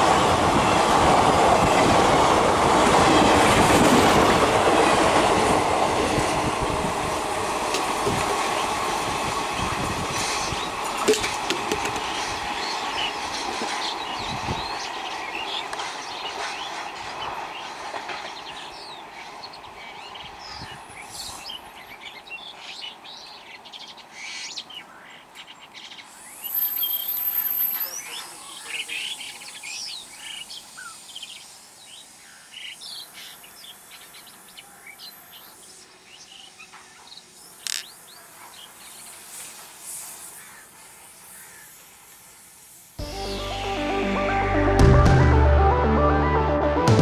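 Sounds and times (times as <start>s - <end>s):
train departing: 0.0s - 24.1s, 26.0s - 47.0s
small birds chirping: 12.0s - 42.4s
thin high whistle: 26.4s - 28.1s.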